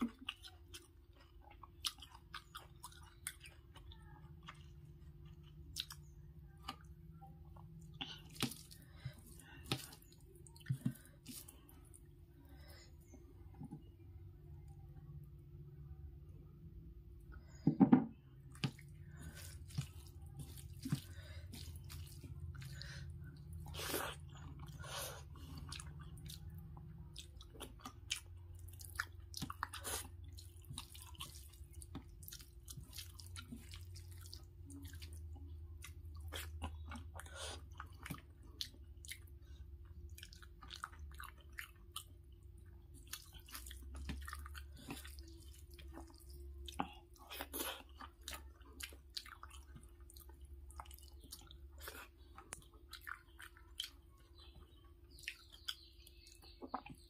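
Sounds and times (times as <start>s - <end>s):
chewing: 0.0s - 13.2s, 18.4s - 57.0s
low steady hum: 0.0s - 57.0s.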